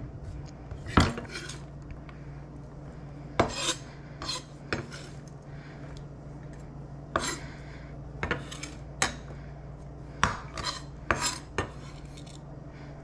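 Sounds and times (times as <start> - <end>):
knife scraping cutting board: 0.8 - 1.7, 3.4 - 5.3, 7.1 - 7.5, 8.2 - 8.9, 10.2 - 12.4.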